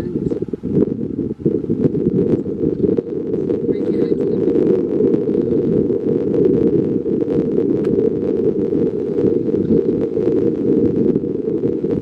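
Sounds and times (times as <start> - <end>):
strong wind buffeting microphone: 0.0 - 12.0.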